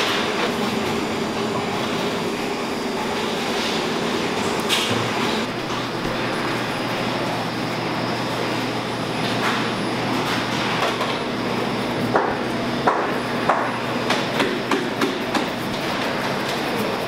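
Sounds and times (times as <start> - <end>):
steady machinery noise: 0.0 - 17.0
tool knocking on worktable: 12.1 - 15.5.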